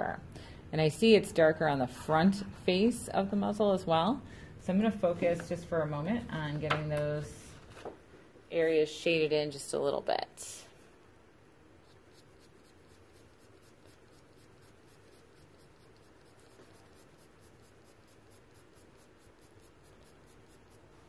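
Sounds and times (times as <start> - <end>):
pencil scratching on paper: 11.8 - 21.0.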